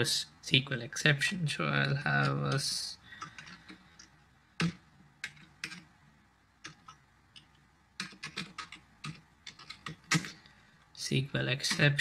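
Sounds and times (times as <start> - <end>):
keyboard typing: 2.5 - 5.9, 6.6 - 10.5.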